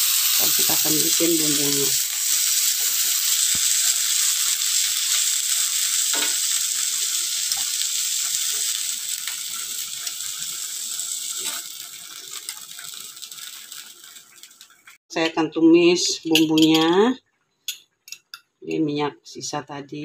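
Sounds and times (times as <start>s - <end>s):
oil sizzling in a pan: 0.0s - 15.0s.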